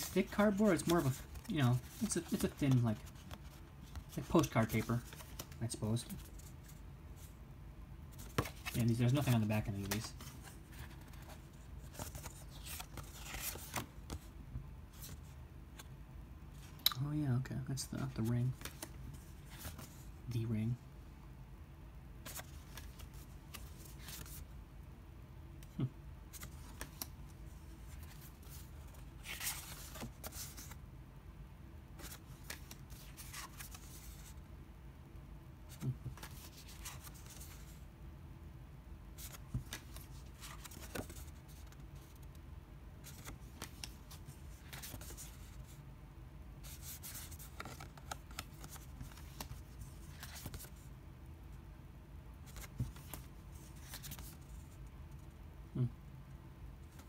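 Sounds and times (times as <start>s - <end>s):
paper cards rustling and scraping: 0.0s - 7.3s, 8.1s - 14.3s, 14.9s - 15.9s, 18.0s - 20.1s, 22.2s - 24.5s, 25.6s - 30.8s, 32.0s - 34.4s, 35.7s - 37.8s, 39.1s - 42.4s, 43.0s - 45.8s, 46.6s - 50.9s, 52.4s - 55.3s.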